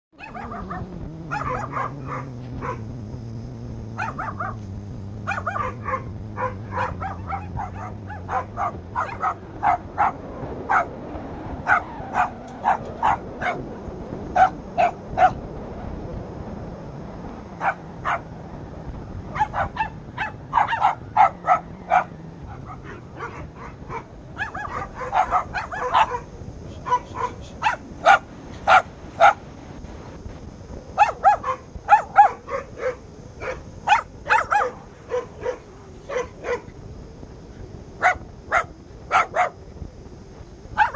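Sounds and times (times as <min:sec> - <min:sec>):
puppies yapping: 0:00.2 - 0:02.8, 0:03.9 - 0:04.7, 0:05.3 - 0:10.9, 0:11.6 - 0:13.8, 0:17.6 - 0:18.3, 0:19.3 - 0:29.4.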